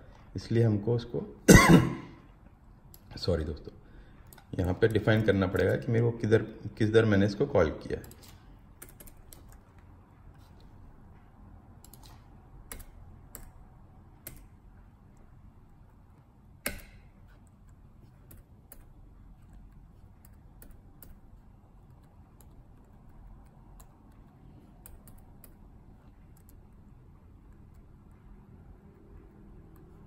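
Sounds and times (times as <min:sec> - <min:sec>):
faint low hum: 0:00.0 - 0:30.0
keyboard key presses: 0:11.8 - 0:13.6.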